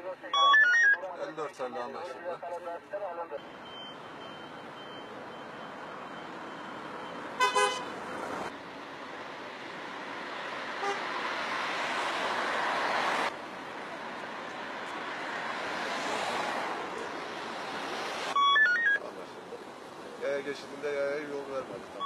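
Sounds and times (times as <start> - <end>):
street traffic: 0.0 - 22.0
car horn toot: 7.4 - 7.9.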